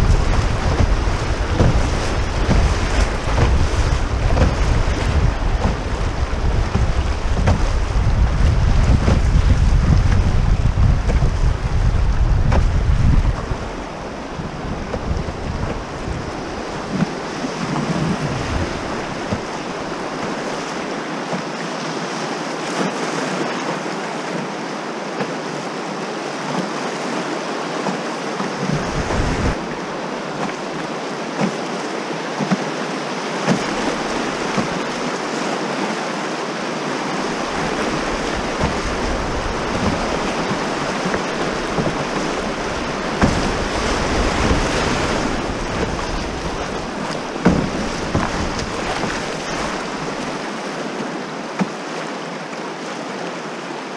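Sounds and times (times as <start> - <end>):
wind buffeting microphone: 0.0 - 20.9, 28.6 - 30.0, 37.1 - 50.4
river water rushing and splashing: 0.0 - 53.9.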